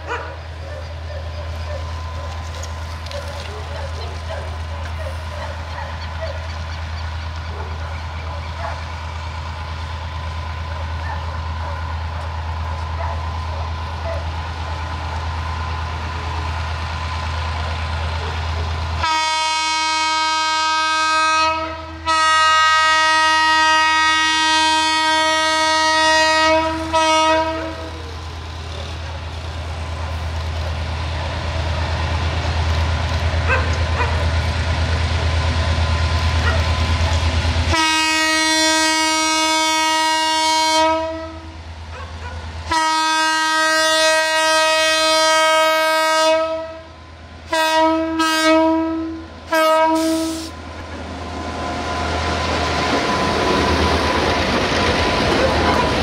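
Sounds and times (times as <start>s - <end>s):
diesel engine rumble: 0.0s - 19.1s, 24.9s - 39.3s
locomotive air horn blasts: 19.0s - 28.0s, 37.7s - 41.6s, 42.7s - 46.9s, 47.5s - 50.6s.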